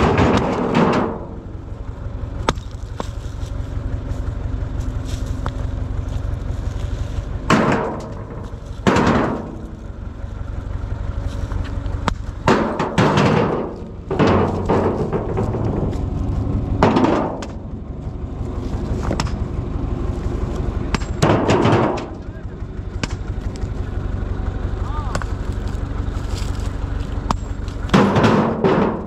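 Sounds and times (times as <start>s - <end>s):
rocks thudding into steel trailer: 0.0s - 1.5s, 7.4s - 10.0s, 12.0s - 17.7s, 20.9s - 22.4s, 27.2s - 29.0s
tractor engine idling: 0.0s - 29.0s.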